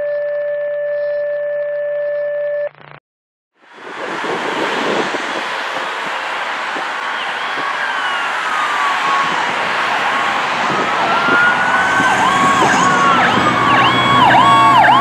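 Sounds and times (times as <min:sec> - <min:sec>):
roadside traffic noise: 0:03.6 - 0:15.0.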